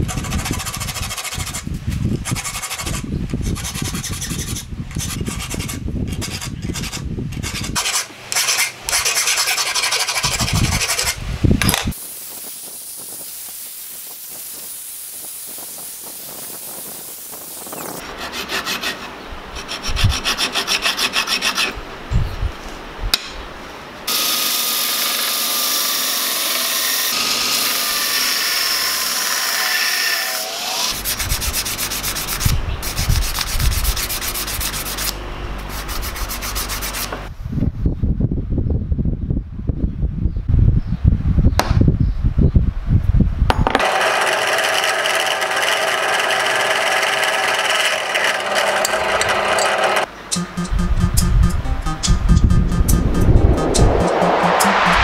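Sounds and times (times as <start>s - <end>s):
hand file rasping on metal: 2.2s - 11.2s, 18.0s - 21.8s
machine whine falling in pitch: 50.3s - 55.0s.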